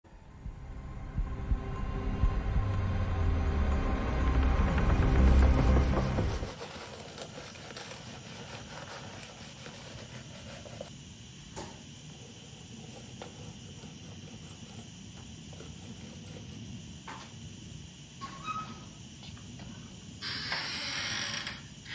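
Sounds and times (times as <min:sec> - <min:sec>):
film score music: 0:00.1 - 0:06.6
faint insect chirring: 0:05.1 - 0:21.9.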